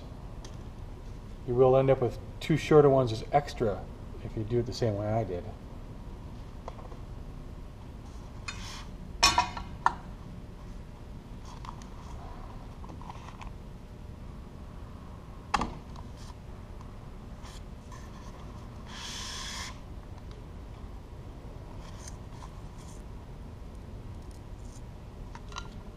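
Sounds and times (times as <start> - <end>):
low room hum: 0.0 - 25.9
rustling scrape: 8.0 - 8.9, 17.4 - 19.8.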